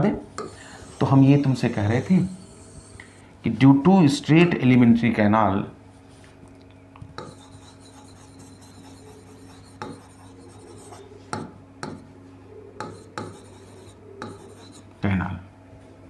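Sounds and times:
faint low hum: 0:00.0 - 0:16.0
marker squeaking on whiteboard: 0:00.4 - 0:03.2, 0:07.2 - 0:11.1, 0:12.8 - 0:14.9.

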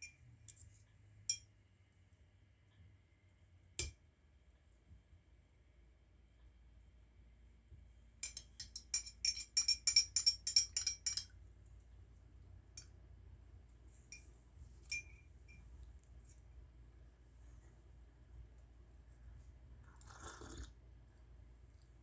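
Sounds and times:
objects clinking against glass jar: 0:08.2 - 0:11.4, 0:14.1 - 0:15.6.

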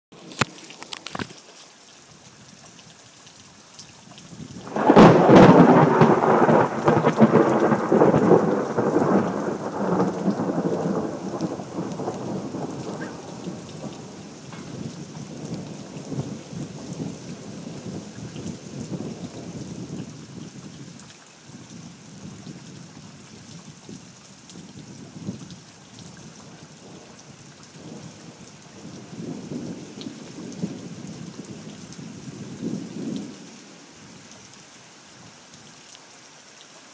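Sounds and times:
steady rain hissing: 0:00.1 - 0:36.9
thunder rumbling: 0:04.6 - 0:20.2, 0:27.8 - 0:31.6.

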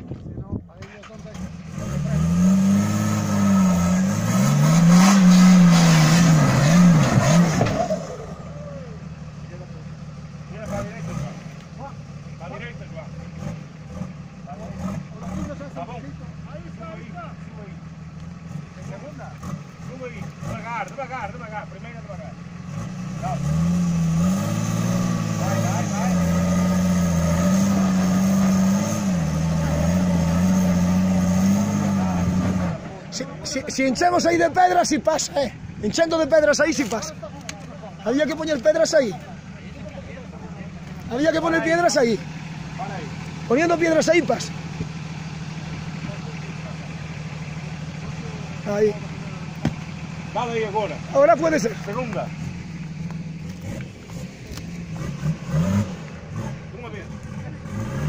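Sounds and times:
engine revving hard: 0:01.2 - 0:08.9, 0:10.5 - 0:11.6, 0:13.2 - 0:15.9, 0:18.5 - 0:21.0, 0:22.6 - 0:34.9, 0:53.5 - 0:58.0.

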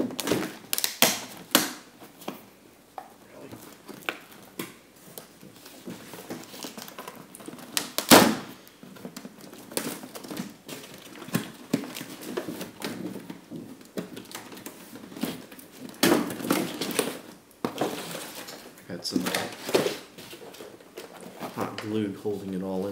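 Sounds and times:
cardboard rustling and scraping: 0:03.3 - 0:08.0, 0:08.7 - 0:22.9
loud sharp crack: 0:07.8 - 0:08.6.

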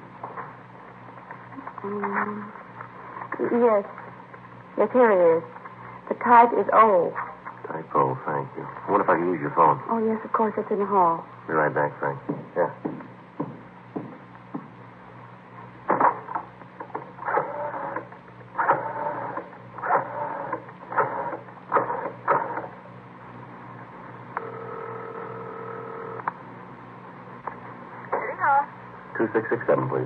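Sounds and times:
telephone ringing tone: 0:24.4 - 0:26.2.

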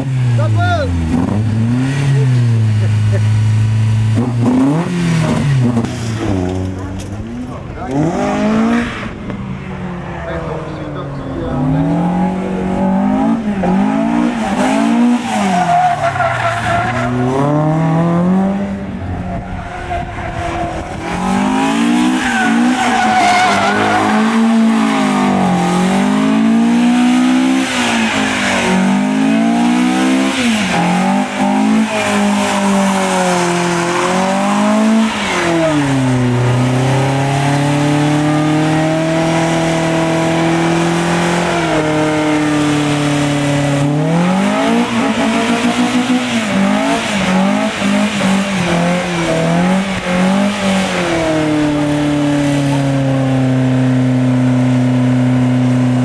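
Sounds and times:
car engine revving: 0:00.0 - 0:56.0
tyres squealing: 0:19.3 - 0:25.8.

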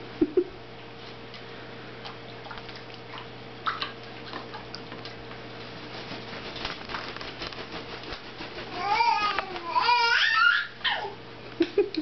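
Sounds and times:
parrot splashing in water: 0:02.0 - 0:08.8
wet wing-flapping: 0:03.7 - 0:09.9.

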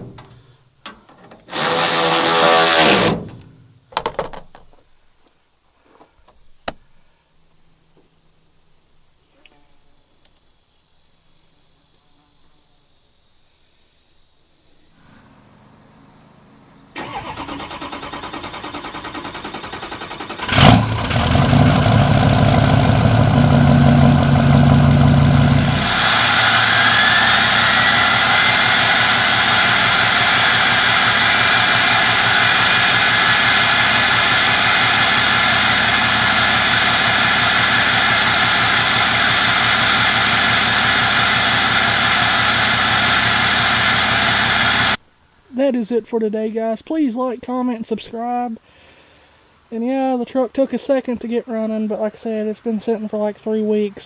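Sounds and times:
diesel engine cranking and idling: 0:00.0 - 0:00.4, 0:16.9 - 0:45.0
engine bang: 0:00.0 - 0:00.4, 0:17.0 - 0:45.0
rising whine: 0:21.4 - 0:45.0.

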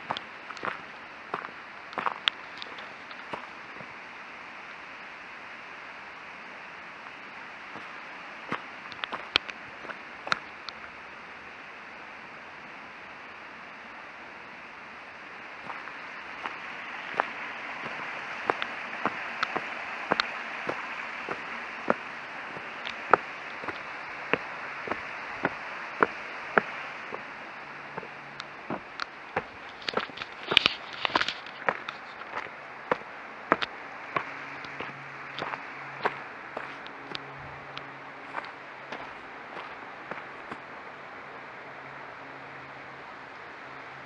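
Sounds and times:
footsteps on gravel path: 0:00.0 - 0:03.9, 0:07.7 - 0:10.9, 0:15.6 - 0:40.8
stream rushing: 0:00.0 - 0:44.0.

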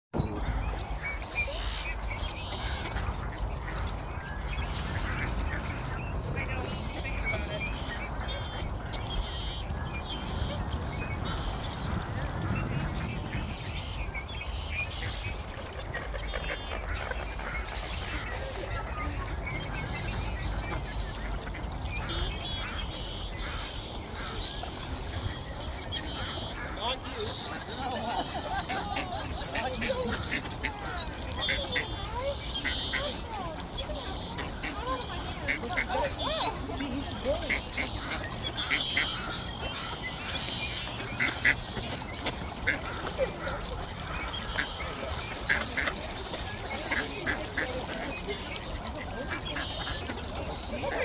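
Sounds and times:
ducks quacking and chirping: 0:00.2 - 0:51.0
steady low rumble: 0:00.4 - 0:26.7.

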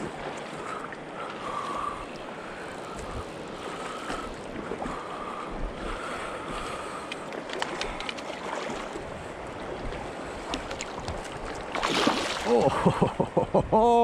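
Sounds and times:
river rippling over pebbles: 0:00.0 - 0:13.1
light clicks: 0:07.0 - 0:08.3.

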